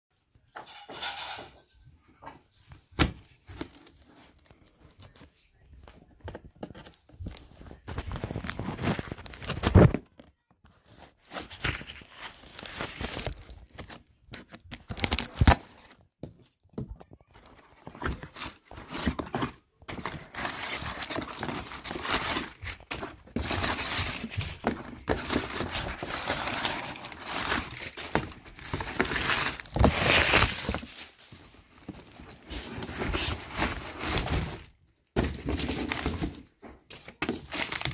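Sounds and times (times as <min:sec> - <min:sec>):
cardboard box ripping and crumpling: 0:11.2 - 0:14.0, 0:14.8 - 0:15.9, 0:17.5 - 0:36.4, 0:37.2 - 0:37.9.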